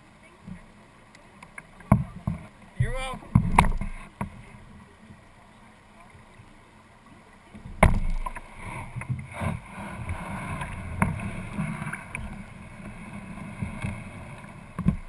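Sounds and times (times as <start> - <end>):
water sloshing: 0.2 - 15.0
kayak bumping against rocks: 1.5 - 4.6, 7.5 - 15.0.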